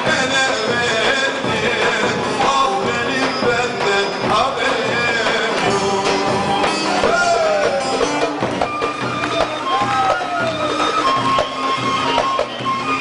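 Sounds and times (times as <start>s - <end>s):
man singing into a microphone: 0.0s - 8.1s
large drum: 0.0s - 13.0s.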